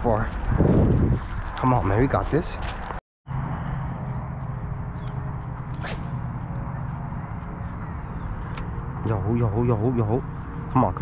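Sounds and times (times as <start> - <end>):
fishing rod swishing: 5.7 - 6.6.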